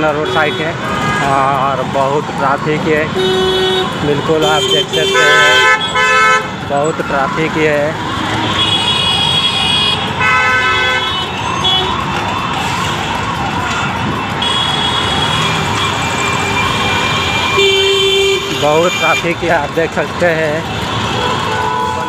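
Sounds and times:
heavy road traffic: 0.0s - 22.0s
vehicle horns honking: 0.1s - 1.5s, 3.1s - 6.6s, 8.5s - 12.0s, 14.4s - 19.4s, 20.9s - 22.0s
siren rising and falling: 11.2s - 17.6s.

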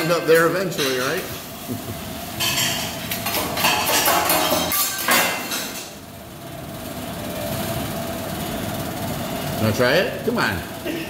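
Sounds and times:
metal spatulas clanking on griddle: 0.0s - 1.2s, 2.4s - 5.9s.

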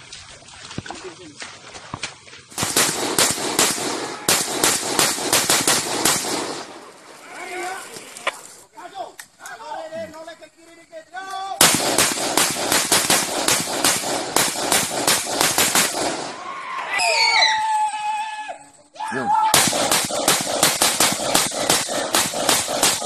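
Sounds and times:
automatic gunfire: 2.6s - 7.0s, 11.6s - 16.4s, 19.6s - 23.0s.

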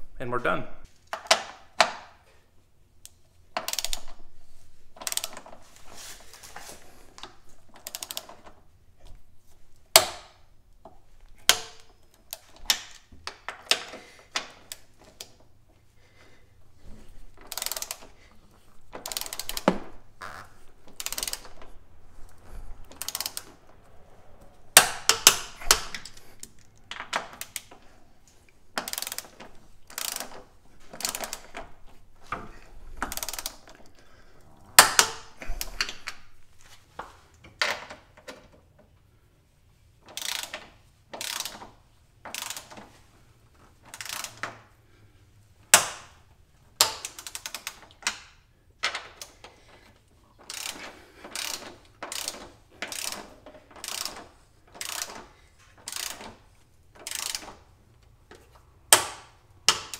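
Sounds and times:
socket wrench ratchet clicking: 3.6s - 4.2s, 5.0s - 5.4s, 7.8s - 8.4s, 17.4s - 18.1s, 19.0s - 21.7s, 22.9s - 23.6s, 24.8s - 27.8s, 28.8s - 31.6s, 33.0s - 33.8s, 40.1s - 41.7s, 42.3s - 42.8s, 43.9s - 44.6s, 46.8s - 48.3s, 50.4s - 57.6s.

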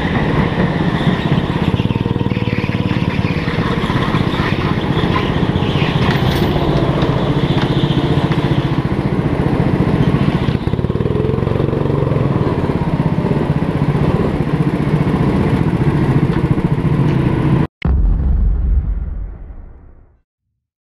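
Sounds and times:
go-kart engine running: 0.0s - 17.6s
tyre and chassis noise: 0.0s - 18.0s
loud low boom: 17.8s - 20.2s.

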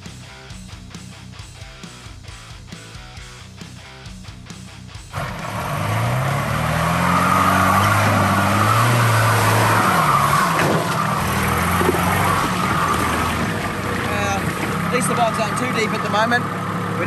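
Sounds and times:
truck engine revving: 5.0s - 17.0s
tyres splashing through mud: 5.2s - 16.6s.

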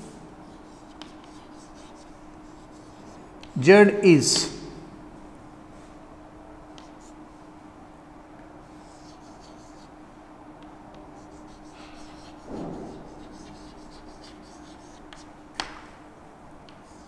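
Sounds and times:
faint steady hum: 0.0s - 17.0s
chalk scratching on blackboard: 0.4s - 3.6s, 6.8s - 7.2s, 8.7s - 9.9s, 10.9s - 15.3s, 16.7s - 17.0s.

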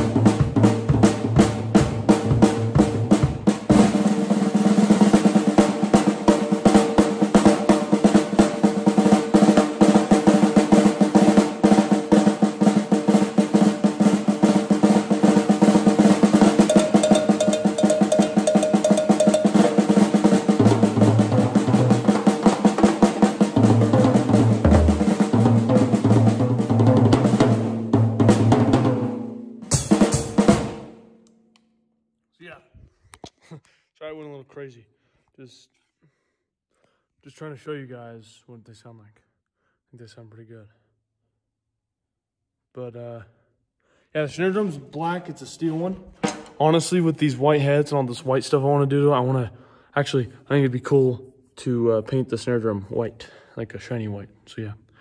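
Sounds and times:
drum solo on toms and snare: 0.0s - 30.9s.

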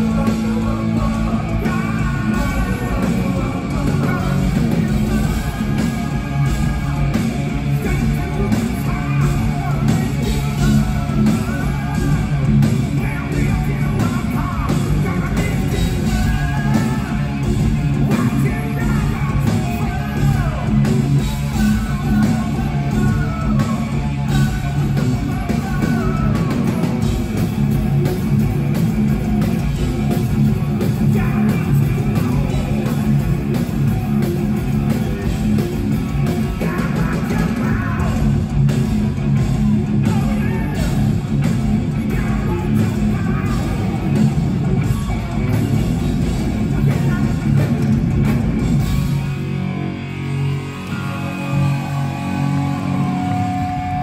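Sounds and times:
bass: 0.0s - 54.0s
drums: 0.0s - 54.0s
electric guitars: 0.0s - 54.0s
person singing: 36.2s - 38.3s, 50.7s - 54.0s.

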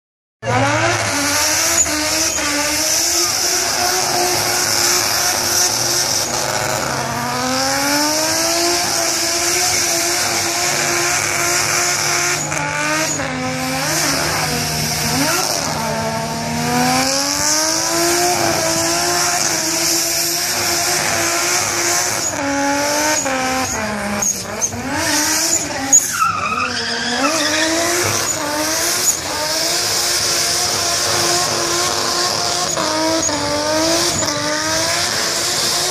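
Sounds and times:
car engine revving: 0.4s - 35.9s
tyres squealing: 24.2s - 29.4s.

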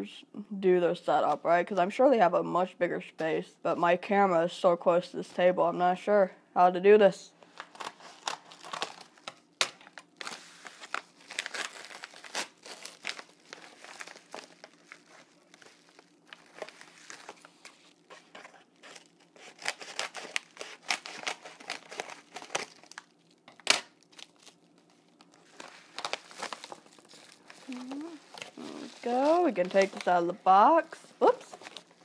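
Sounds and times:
paper mailer crinkling and tearing: 7.5s - 32.0s
sharp paper cracks: 18.8s - 30.2s.

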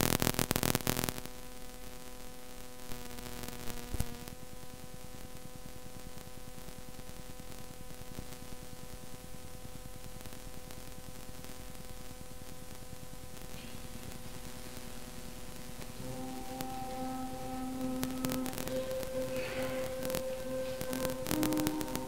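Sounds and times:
recording hiss and hum: 0.0s - 22.0s
faint sustained note: 13.6s - 22.0s
orchestra and choir: 15.9s - 22.0s.

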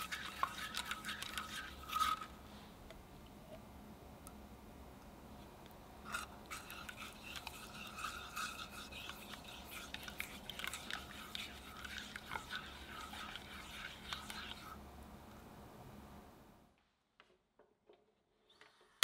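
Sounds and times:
spatula scraping a saucepan: 0.0s - 2.4s, 6.1s - 14.8s.

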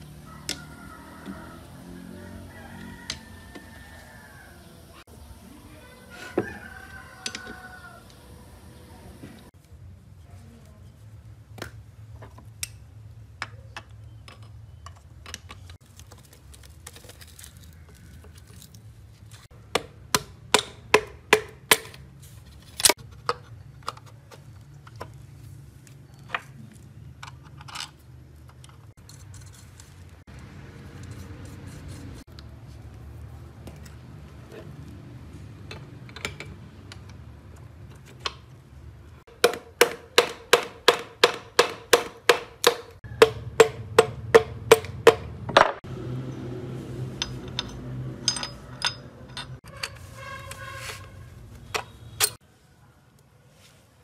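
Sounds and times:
metal parts and tools clinking: 26.1s - 30.1s, 35.6s - 38.5s, 47.1s - 52.4s.

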